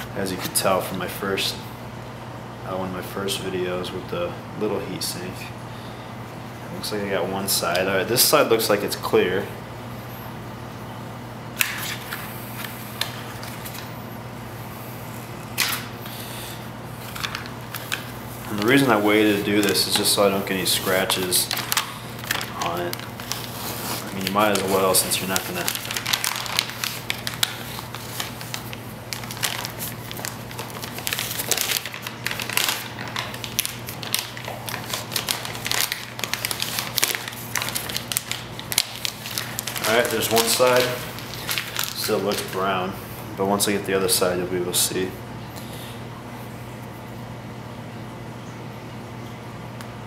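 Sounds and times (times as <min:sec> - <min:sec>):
paper backing peeling: 0:16.9 - 0:42.8.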